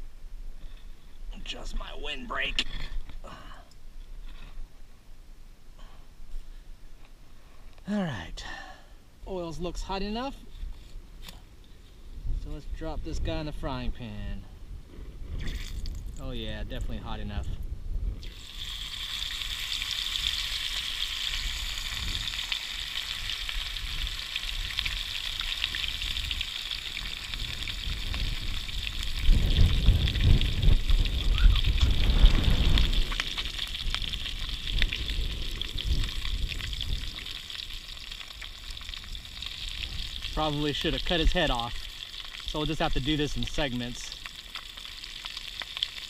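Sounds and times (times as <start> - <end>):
wind rumbling on microphone: 10.4 - 41.8
fish sizzling in hot oil: 18.2 - 46.0.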